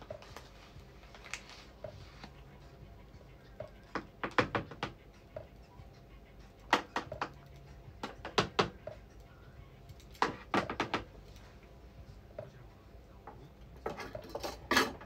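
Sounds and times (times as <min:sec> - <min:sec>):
kitchen utensils clicking: 0:13.8 - 0:15.0.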